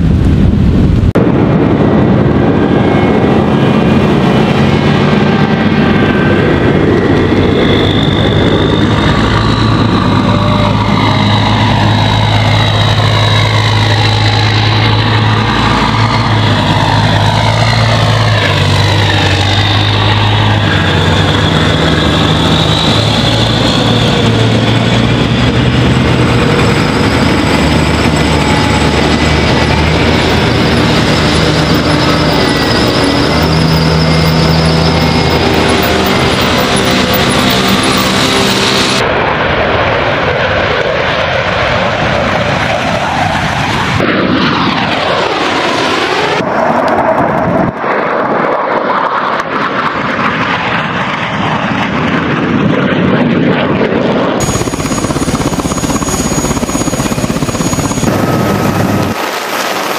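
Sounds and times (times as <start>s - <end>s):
high whines: 0.0s - 40.8s, 54.4s - 59.9s
armoured vehicle engine drone: 0.0s - 59.9s.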